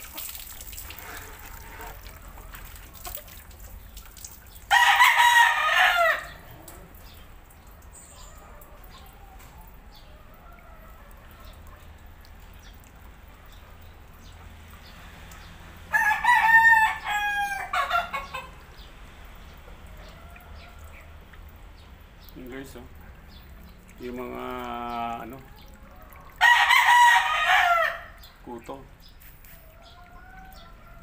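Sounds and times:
rooster crowing: 0:04.7 - 0:06.5, 0:15.9 - 0:18.2, 0:25.8 - 0:28.2.

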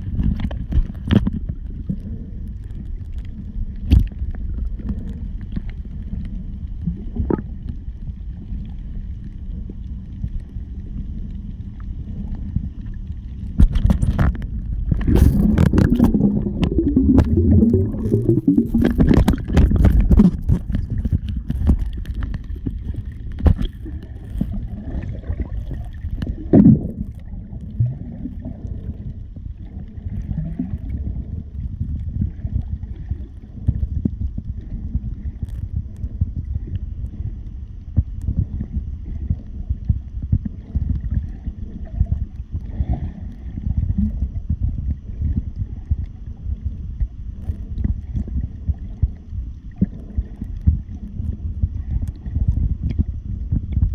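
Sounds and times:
muffled underwater water wash: 0:00.0 - 0:53.9.

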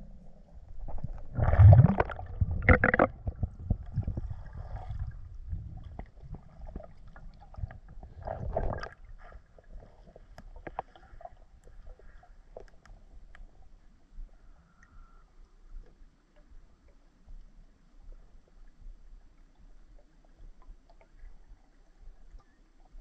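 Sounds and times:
muffled underwater gurgling: 0:00.8 - 0:06.8
small underwater clicks: 0:01.8 - 0:04.0, 0:10.3 - 0:23.0.

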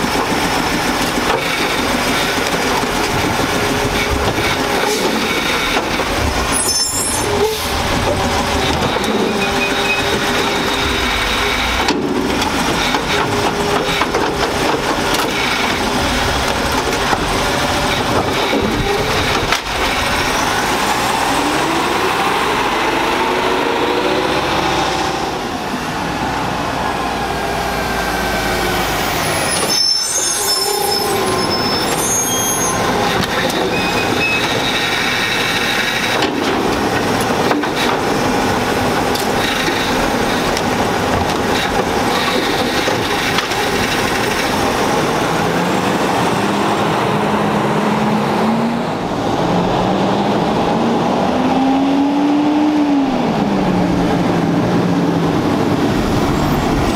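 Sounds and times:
garbage truck driving past: 0:00.0 - 0:56.9
high-pitched brake squeal: 0:06.5 - 0:07.9, 0:08.9 - 0:11.8, 0:28.7 - 0:36.0
engine revving: 0:07.2 - 0:29.4, 0:41.6 - 0:56.9.

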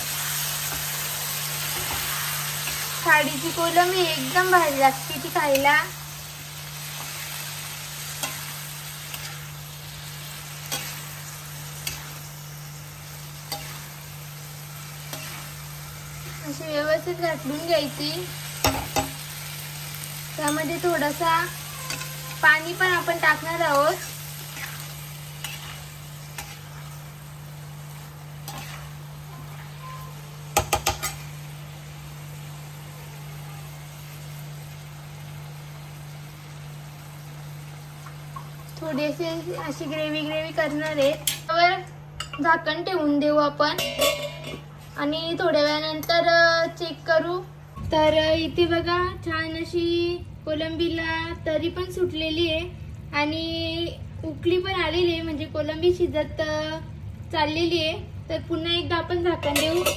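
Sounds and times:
food sizzling in hot oil: 0:00.0 - 0:47.2, 0:50.5 - 0:59.9
metal spatula scraping pan: 0:15.0 - 0:15.6, 0:21.7 - 0:26.9, 0:28.4 - 0:29.0
metal ladle knocking on metal pan: 0:30.6 - 0:31.2.

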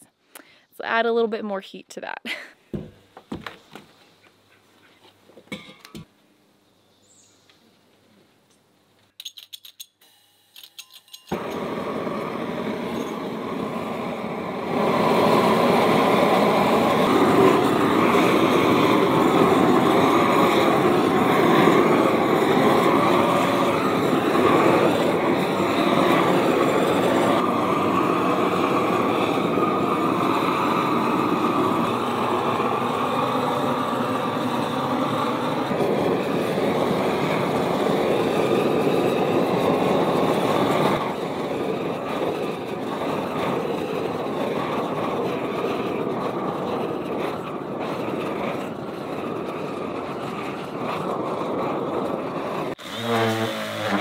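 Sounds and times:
propane torch hissing: 0:11.3 - 0:54.0.

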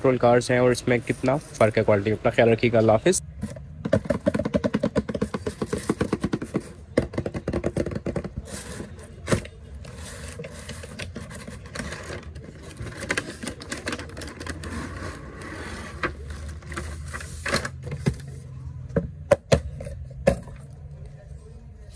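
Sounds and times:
cardboard tray scraping out: 0:14.4 - 0:17.7.

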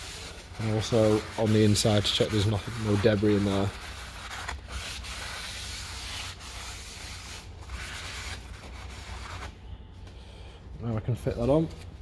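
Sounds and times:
cloth scrubbing brake disc: 0:00.0 - 0:09.5.

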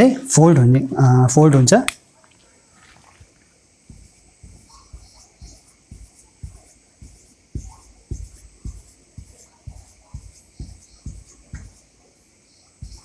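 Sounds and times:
marker tapping and scratching on whiteboard: 0:03.8 - 0:13.0.

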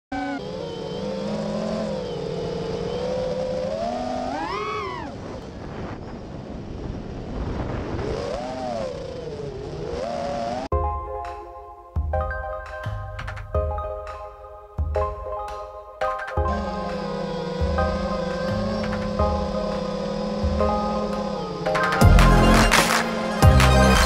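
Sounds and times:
quadcopter motors whining: 0:00.1 - 0:10.7, 0:16.4 - 0:24.0.

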